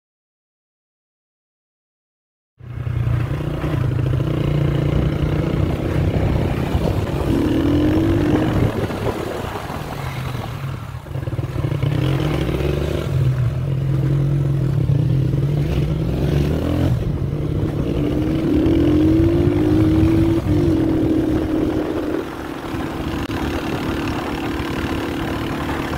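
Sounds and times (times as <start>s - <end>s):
vehicle engine running: 11.0s - 25.9s.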